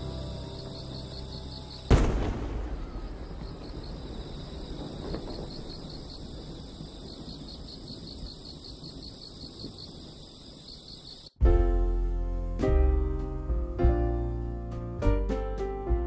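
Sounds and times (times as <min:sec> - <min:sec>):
firework burst rumble: 0:00.0 - 0:09.2
night insects chirping: 0:00.0 - 0:11.4
faint thump: 0:01.9 - 0:05.8.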